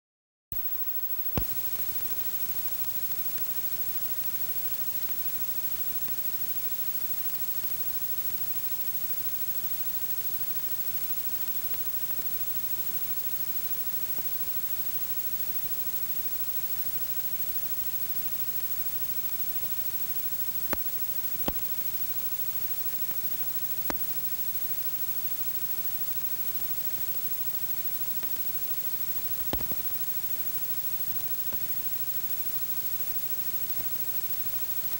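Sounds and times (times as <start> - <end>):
sharp pops: 29.4 - 29.8.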